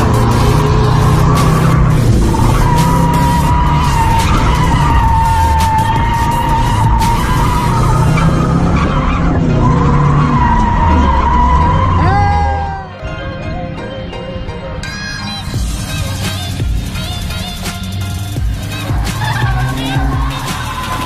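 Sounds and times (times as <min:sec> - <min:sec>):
car engine running hard: 0:00.0 - 0:12.6, 0:15.4 - 0:21.0
tyres squealing: 0:00.0 - 0:12.9, 0:16.0 - 0:21.0.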